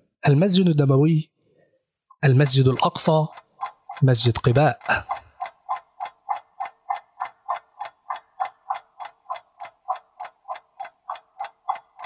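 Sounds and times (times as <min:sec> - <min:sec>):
timer ticking: 0:02.4 - 0:12.0.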